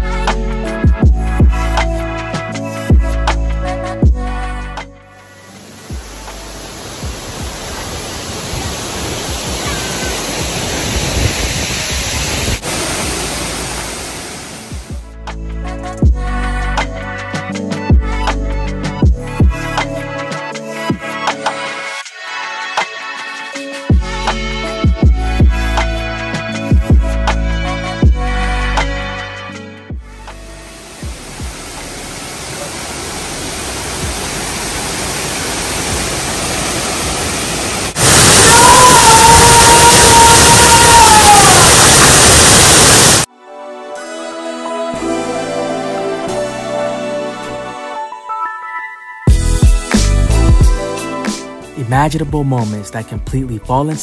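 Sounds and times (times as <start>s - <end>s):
waterfalls rushing into a pool: 5.5s - 14.9s, 30.7s - 43.3s.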